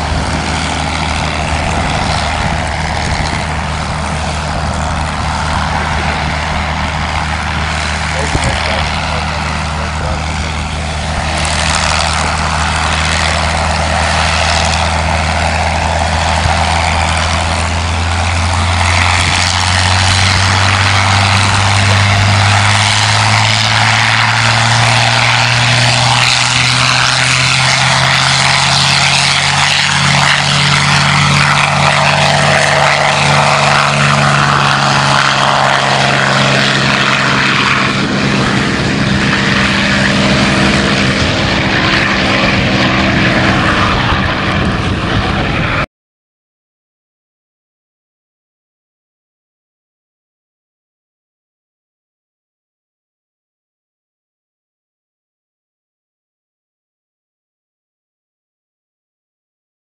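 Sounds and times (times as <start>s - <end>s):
propeller aircraft engine running: 0.0s - 45.9s.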